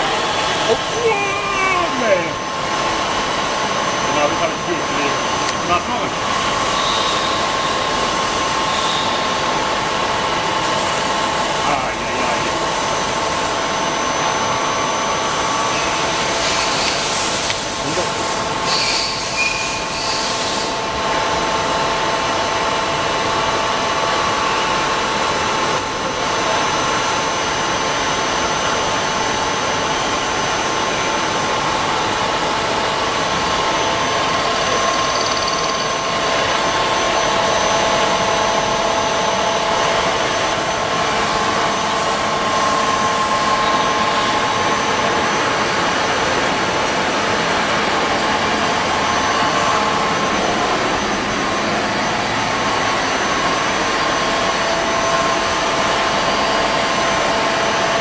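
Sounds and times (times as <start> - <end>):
milling machine hum: 0.0 - 58.0
whining tones: 32.7 - 58.0.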